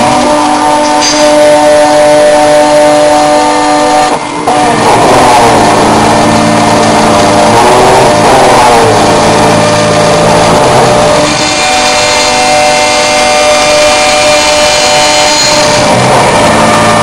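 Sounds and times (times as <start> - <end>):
cnc router milling aluminium: 0.0 - 17.0.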